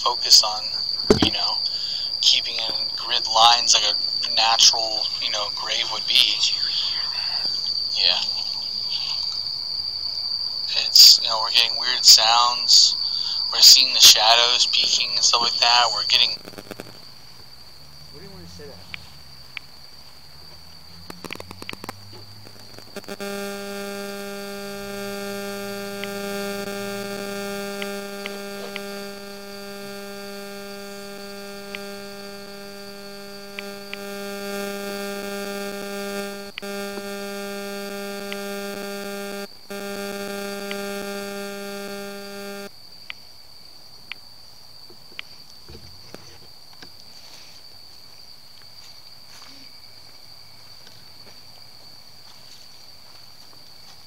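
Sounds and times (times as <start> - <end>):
low electronic buzzing hum: 0.0 - 7.0, 10.6 - 19.7, 21.0 - 42.8
faint high whine: 0.0 - 9.6, 10.2 - 19.7, 21.0 - 42.8.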